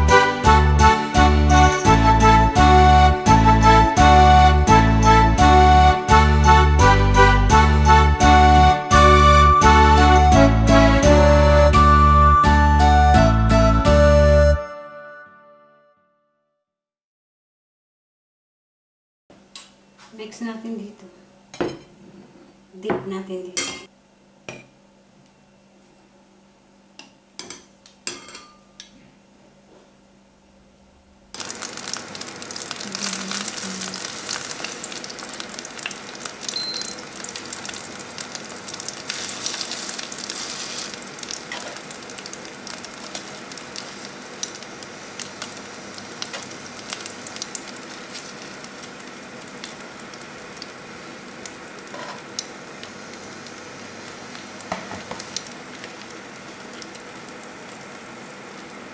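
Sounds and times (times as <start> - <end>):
pan sizzling: 31.3 - 58.9.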